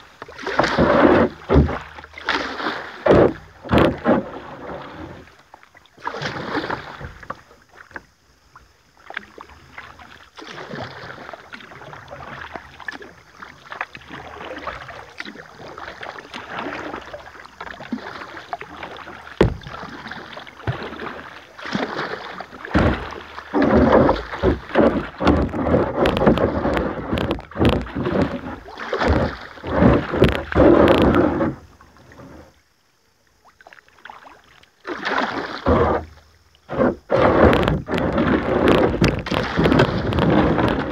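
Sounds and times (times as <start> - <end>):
paddle splashing in water: 0.0 - 40.9
knocks: 19.4 - 19.7, 23.7 - 28.4.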